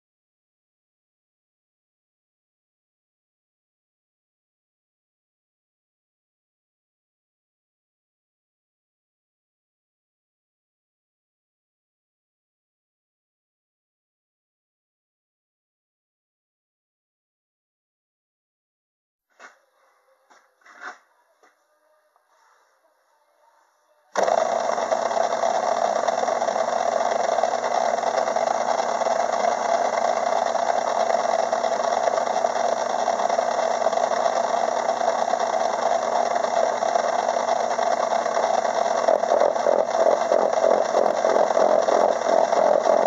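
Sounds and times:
cutter chattering on steel: 0:24.2 - 0:43.0
metal lathe running: 0:24.2 - 0:43.0.

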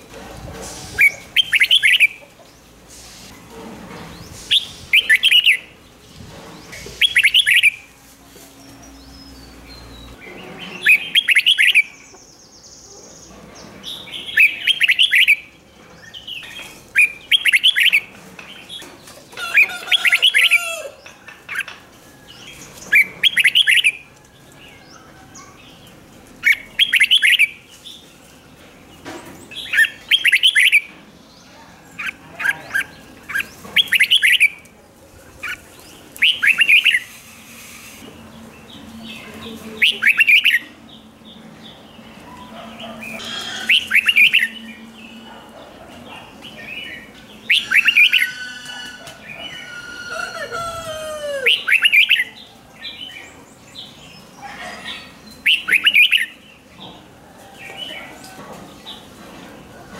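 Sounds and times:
bird singing warbled phrases: 0:01.0 - 0:02.2, 0:04.6 - 0:05.8, 0:06.7 - 0:07.9, 0:09.2 - 0:13.2, 0:14.0 - 0:18.1, 0:22.9 - 0:24.0, 0:25.4 - 0:27.9, 0:29.5 - 0:31.0, 0:32.0 - 0:34.6, 0:35.4 - 0:37.1, 0:38.6 - 0:45.3, 0:46.3 - 0:56.7.

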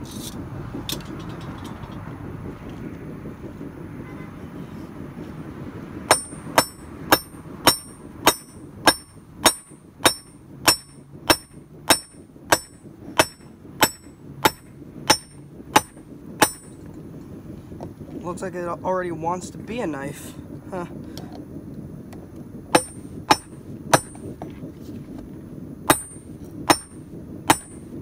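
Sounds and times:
hammer ringing on anvil: 0:06.1 - 0:16.8, 0:22.8 - 0:24.3, 0:25.9 - 0:27.9.

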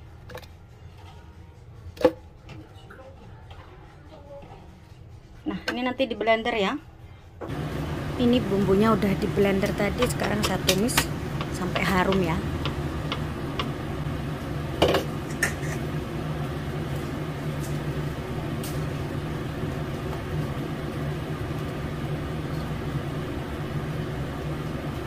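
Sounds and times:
steady low hum: 0:07.0 - 0:25.0.

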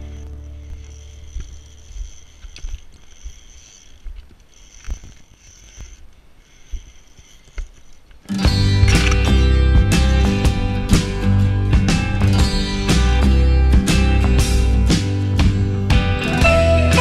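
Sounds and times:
footsteps crunching on shale: 0:00.0 - 0:08.7
music: 0:08.4 - 0:17.0.

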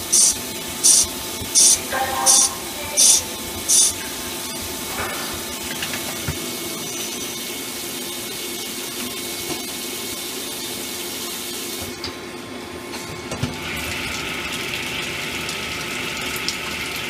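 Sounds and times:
coolant spraying and splashing: 0:00.0 - 0:11.8
faint machine hum: 0:00.0 - 0:17.0.

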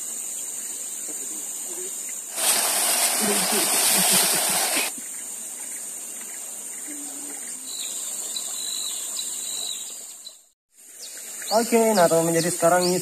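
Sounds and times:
high insect drone: 0:00.0 - 0:10.2, 0:10.8 - 0:13.0
high insect chirps: 0:00.0 - 0:13.0
flowing river water: 0:02.3 - 0:05.0.

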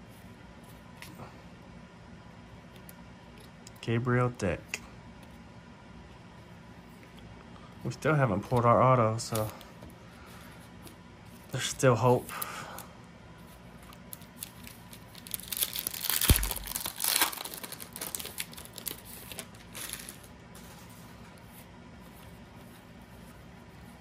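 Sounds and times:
cards rustling: 0:08.1 - 0:09.8, 0:13.5 - 0:21.2
wrapper tearing and crinkling: 0:14.0 - 0:20.3.

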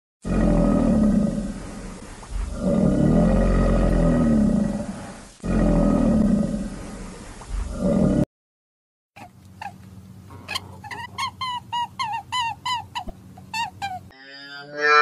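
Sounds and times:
large animal roaring: 0:00.2 - 0:08.3.

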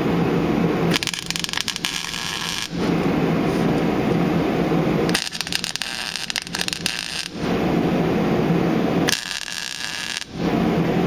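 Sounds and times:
steady low rushing noise: 0:00.0 - 0:09.4, 0:10.2 - 0:11.0
welding arc crackling: 0:00.8 - 0:10.9.

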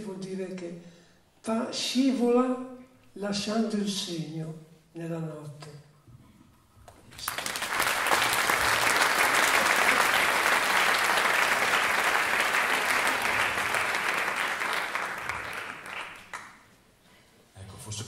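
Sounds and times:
audience applauding: 0:07.1 - 0:16.7.

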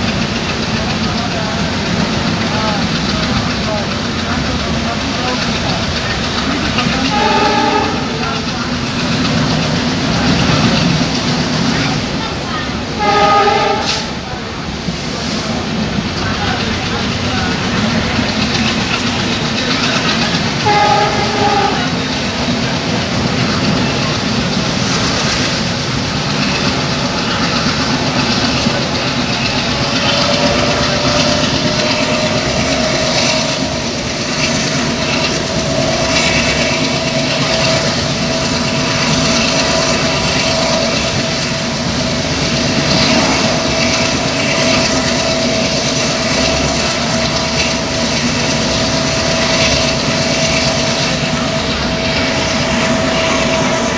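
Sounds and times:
train wheels rumbling on rail: 0:00.0 - 0:53.9
train horn: 0:06.9 - 0:08.5, 0:13.0 - 0:14.2, 0:20.5 - 0:22.1.

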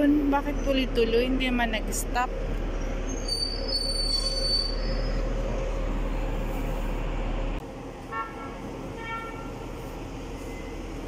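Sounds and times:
bus engine rumbling: 0:00.0 - 0:11.0
brake squeal: 0:02.8 - 0:05.8.

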